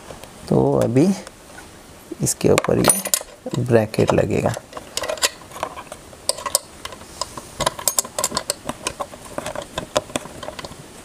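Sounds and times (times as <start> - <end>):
metal bracket clicking in socket: 2.6 - 3.6.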